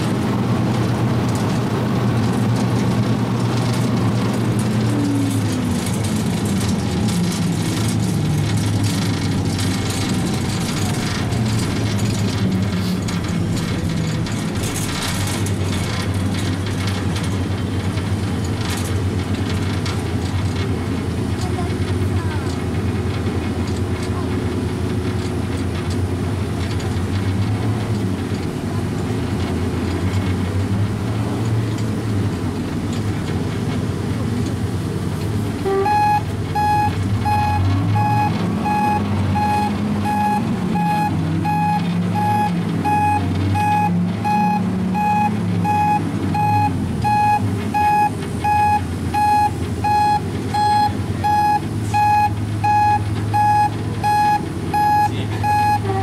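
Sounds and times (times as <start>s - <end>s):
vehicle engine running: 0.0s - 56.0s
back-up alarm beeping: 35.6s - 56.0s.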